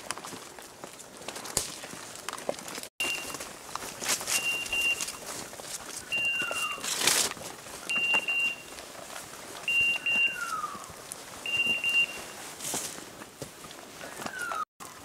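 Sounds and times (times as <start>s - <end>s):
brush rustling: 0.0s - 15.0s
footsteps: 0.0s - 15.0s
beeper collar double beeps: 3.0s - 3.4s, 4.4s - 5.2s, 7.9s - 8.7s, 9.7s - 10.6s, 11.5s - 12.4s.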